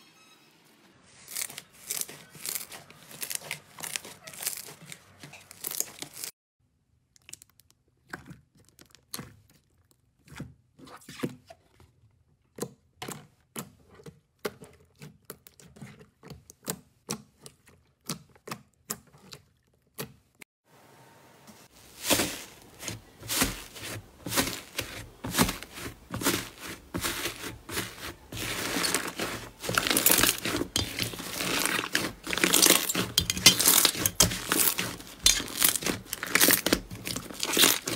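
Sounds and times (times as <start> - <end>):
slime crackling and squelching: 1.2 - 11.1, 21.6 - 37.9.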